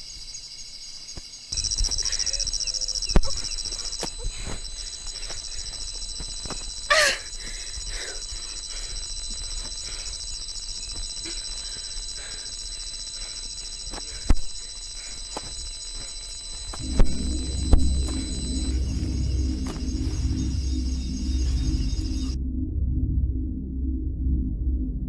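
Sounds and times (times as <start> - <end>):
crickets chirping: 0.0 - 22.4
high squeal bending in pitch: 8.5 - 22.4.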